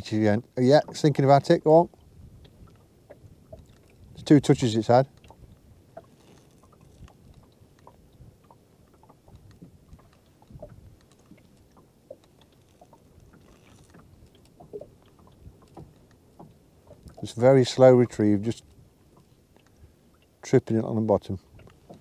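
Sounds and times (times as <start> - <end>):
water lapping against boat hull: 0.0 - 22.0
small knocks and clicks: 5.1 - 17.2.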